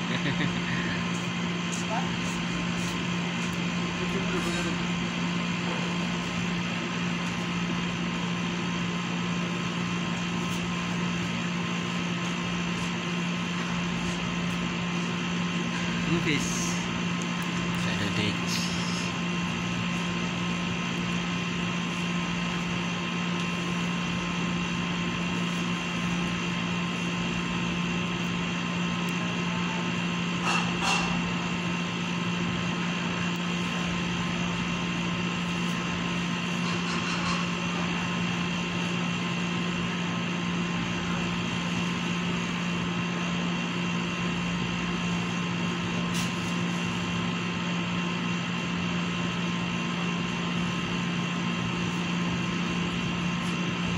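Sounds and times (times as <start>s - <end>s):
machinery hum with whining tones: 0.0s - 53.9s.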